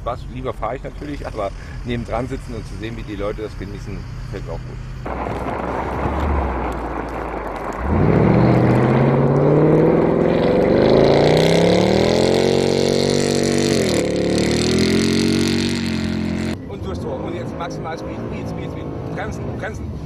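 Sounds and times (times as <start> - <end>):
rushing noise: 5.0 - 16.5
car engine revving hard: 5.1 - 19.7.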